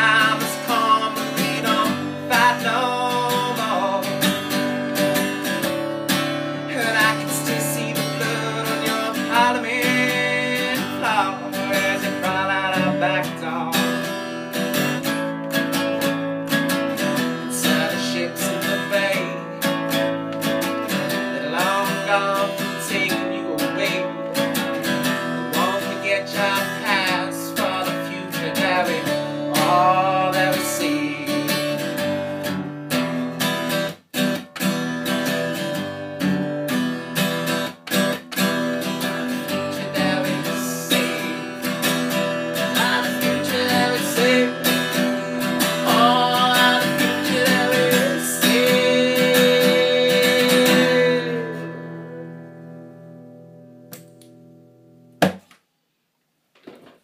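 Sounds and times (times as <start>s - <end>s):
man singing: 0.0s - 4.5s, 6.6s - 14.1s, 17.3s - 19.9s, 21.1s - 32.3s, 39.2s - 52.4s
acoustic guitar strumming: 0.0s - 55.5s
sharp knock: 55.2s - 55.5s.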